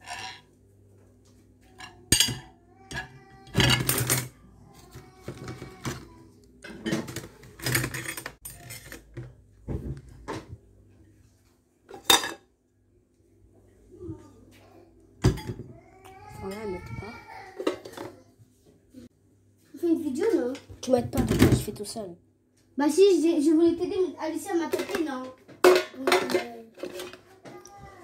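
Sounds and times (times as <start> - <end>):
dishes clattering in dish rack: 1.7 - 4.4, 6.6 - 9.3, 11.9 - 12.5, 15.2 - 15.7, 24.6 - 27.2.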